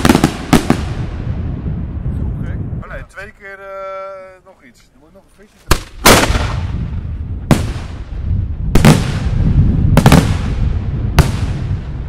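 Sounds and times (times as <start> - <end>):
rolling echo: 5.7 - 12.0.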